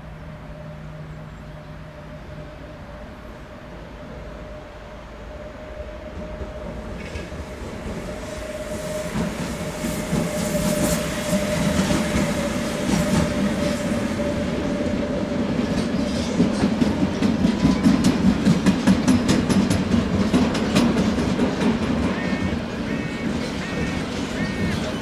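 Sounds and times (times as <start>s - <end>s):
train rumbling past: 0.0s - 25.0s
wheels clattering over rail joints: 14.9s - 25.0s.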